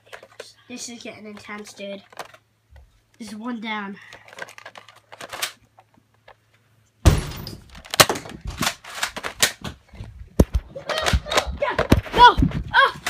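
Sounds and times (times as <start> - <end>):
sharp knocks and thuds: 7.0 - 7.7.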